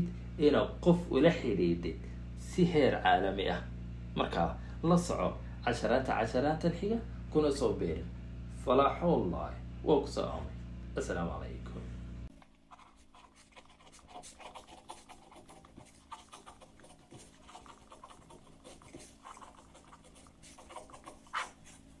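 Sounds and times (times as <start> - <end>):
ballpoint pen scratching on paper: 12.6 - 22.0.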